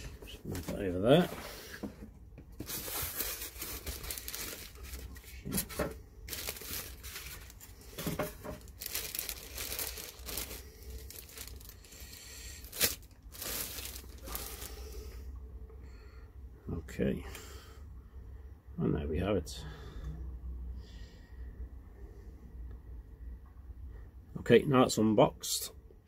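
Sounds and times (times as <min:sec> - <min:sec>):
plastic wrapping crinkling: 0:02.6 - 0:15.0.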